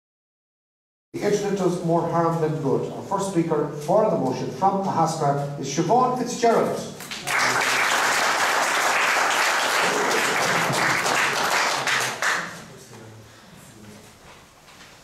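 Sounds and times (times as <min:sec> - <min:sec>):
audience applauding: 0:07.1 - 0:12.6.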